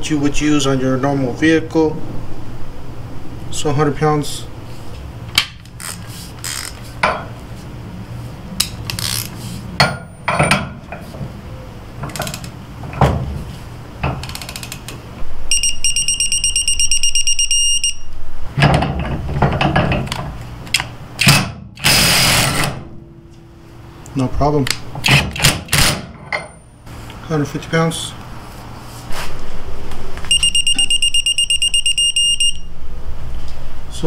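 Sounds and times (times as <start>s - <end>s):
fast high beeps: 15.5s - 18.1s, 30.3s - 32.7s
impact wrench burst: 21.2s - 22.8s.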